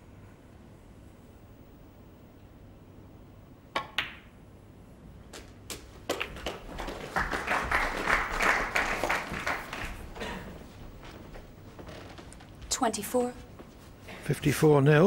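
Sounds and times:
cue tip striking ball: 3.8 - 4.3
audience applauding: 6.1 - 10.8.

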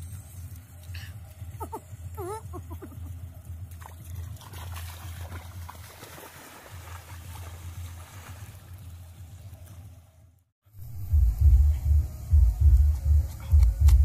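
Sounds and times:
low hum: 6.8 - 14.0.

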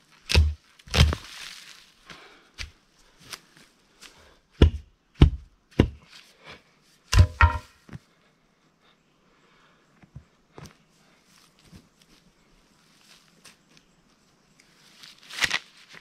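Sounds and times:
pickaxe striking rocky ground: 0.3 - 1.2, 7.1 - 7.8.

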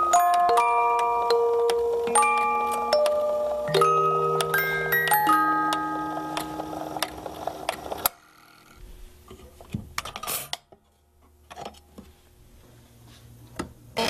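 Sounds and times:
music box melody: 0.0 - 8.1.

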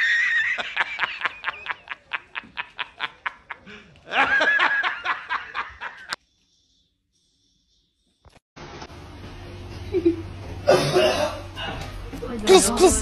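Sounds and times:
man laughing hysterically: 0.0 - 6.2.

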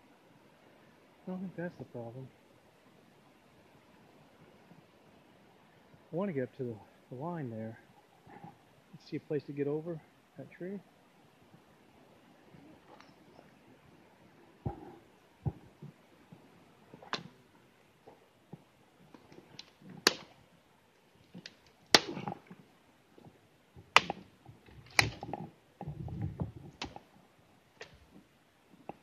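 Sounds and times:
soft thuds: 14.6 - 17.4
twigs snapping underfoot: 19.1 - 20.4, 21.2 - 22.6, 23.9 - 26.0, 26.7 - 27.1.

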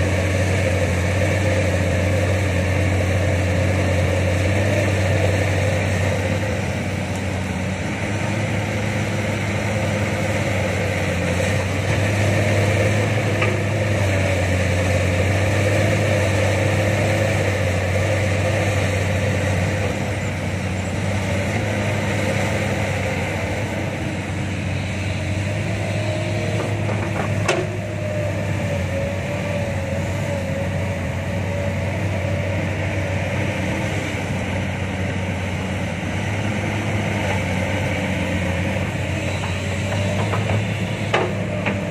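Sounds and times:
diesel engines droning: 0.0 - 41.9
soil loading into truck: 24.1 - 29.2, 36.4 - 41.9.

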